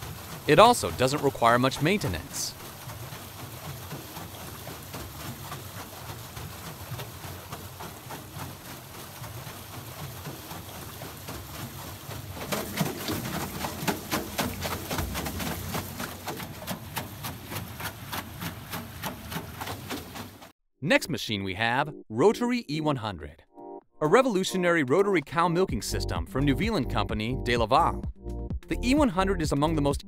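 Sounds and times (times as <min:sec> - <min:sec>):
rushing splashing water: 0:00.0 - 0:20.5
water wheel slaps: 0:00.0 - 0:20.5.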